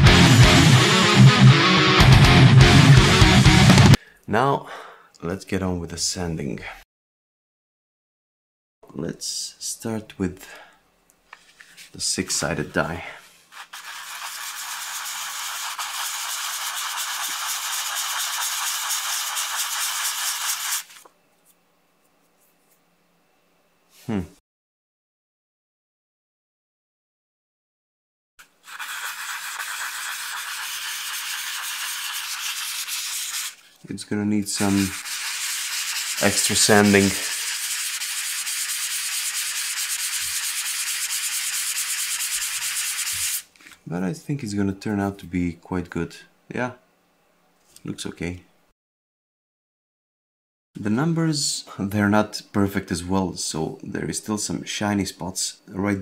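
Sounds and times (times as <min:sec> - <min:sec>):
die rubbed on sandpaper: 0:13.5 - 0:21.0, 0:28.6 - 0:33.6, 0:34.5 - 0:43.4.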